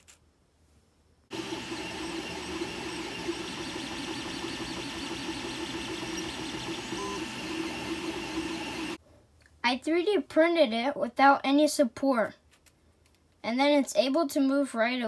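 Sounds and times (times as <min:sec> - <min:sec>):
three d printer whirring: 0:01.3 - 0:09.0.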